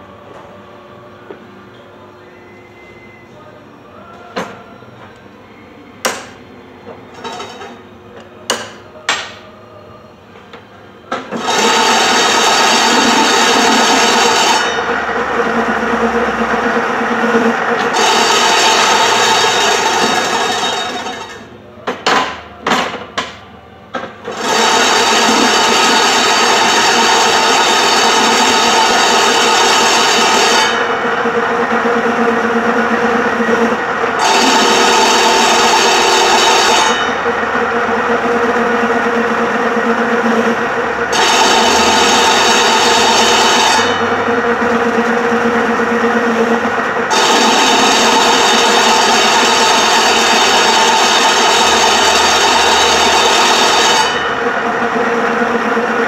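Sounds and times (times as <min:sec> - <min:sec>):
fabric cutting machine running: 0:11.1 - 0:23.0, 0:24.0 - 0:56.0.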